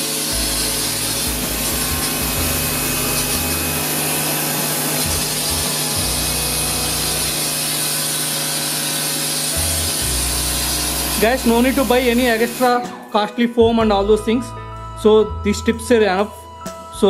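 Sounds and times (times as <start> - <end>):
water spraying hiss: 0.0 - 12.8
pressure washer hum: 0.0 - 13.1.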